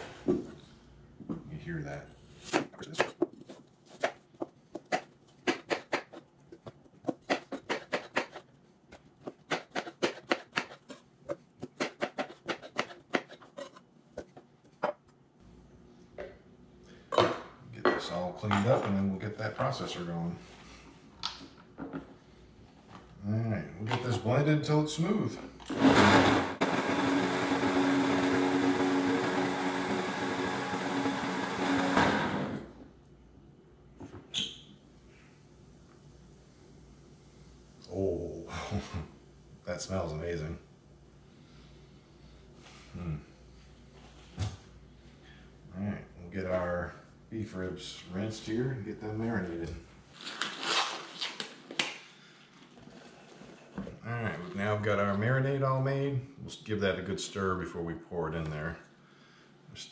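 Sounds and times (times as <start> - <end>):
knife chopping pear on board: 2.5 - 8.4, 9.2 - 13.5
blender running: 25.6 - 32.8.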